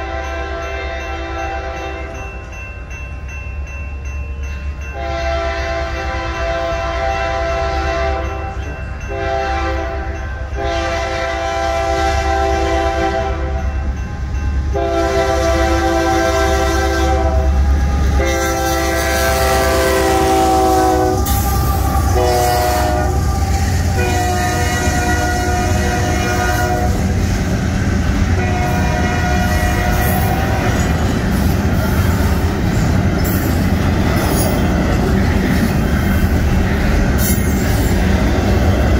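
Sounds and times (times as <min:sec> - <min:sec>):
locomotive air horn blasts: 0:00.0 - 0:02.2, 0:05.0 - 0:08.5, 0:09.1 - 0:13.7, 0:14.7 - 0:27.2, 0:28.4 - 0:31.0
train rumble: 0:00.0 - 0:38.9.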